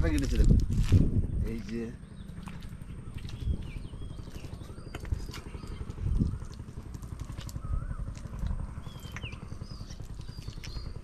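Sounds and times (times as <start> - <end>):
footsteps on mud: 0.0 - 11.0
whistling bird calls: 7.5 - 8.1.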